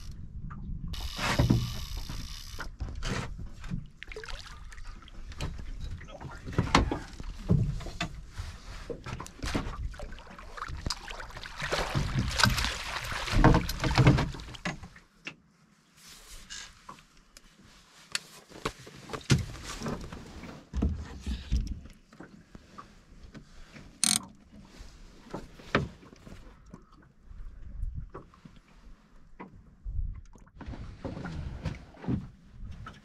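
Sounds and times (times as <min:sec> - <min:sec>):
water splashing and sloshing: 0:00.0 - 0:33.0.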